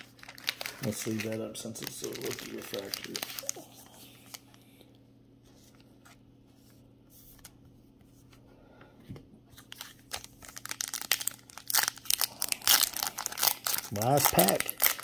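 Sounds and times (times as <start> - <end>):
foil wrapper crinkling: 0.0 - 4.5, 9.6 - 15.0.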